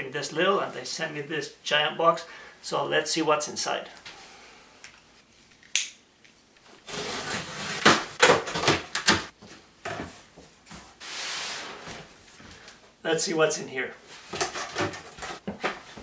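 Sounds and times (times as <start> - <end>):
cardboard scraping and tearing: 6.8 - 8.8.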